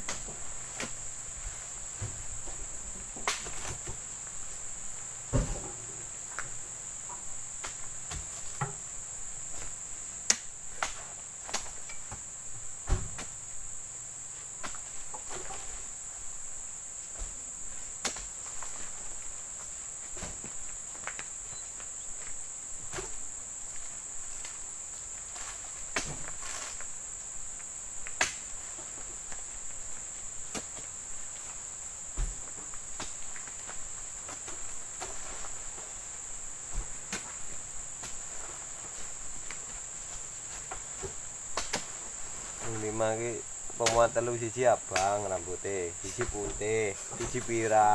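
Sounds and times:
knocks and thuds: 0:05.3 - 0:06.1, 0:12.8 - 0:13.3, 0:46.1 - 0:47.6
high-pitched insect drone: 0:20.7 - 0:24.2, 0:42.6 - 0:47.9.

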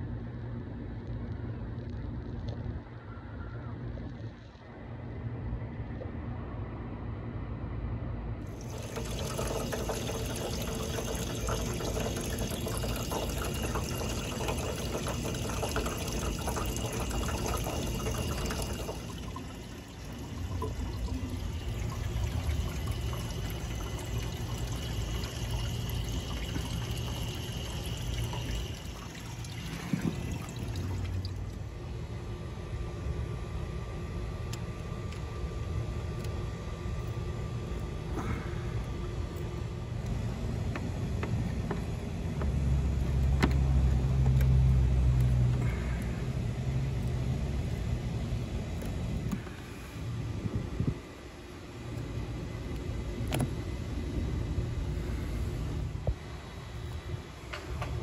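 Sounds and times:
coolant splashing into pan: 0:08.5 - 0:31.6.

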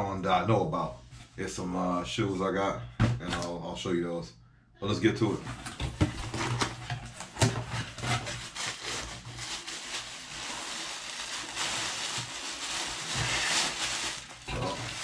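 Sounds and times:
package wrapping rustling: 0:05.4 - 0:15.0.

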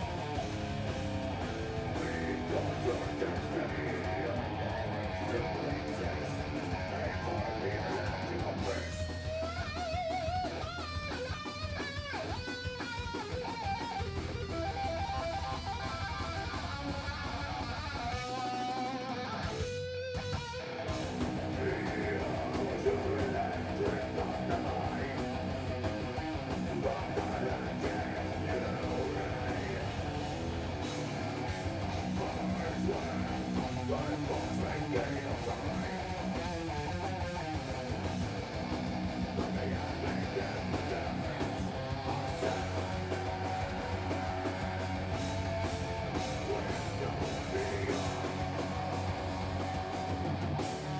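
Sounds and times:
bass guitar: 0:00.0 - 0:50.9
drums: 0:00.0 - 0:50.9
electric guitar lead: 0:00.0 - 0:50.9
person singing into a microphone: 0:02.0 - 0:09.3, 0:21.4 - 0:25.5, 0:26.6 - 0:30.2, 0:32.0 - 0:36.6, 0:39.4 - 0:43.7, 0:46.2 - 0:48.4.

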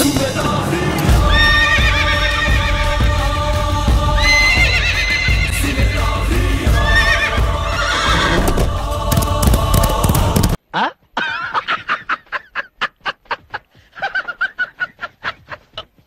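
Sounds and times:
background music: 0:00.0 - 0:10.6
horse whinnying: 0:04.2 - 0:05.5, 0:06.8 - 0:08.6.

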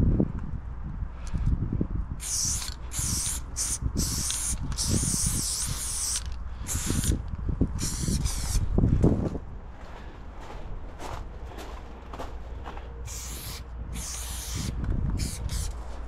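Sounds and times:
spray paint can hissing: 0:02.2 - 0:07.2, 0:07.8 - 0:08.7, 0:13.1 - 0:15.8
footsteps crunching on gravel: 0:09.0 - 0:13.1.

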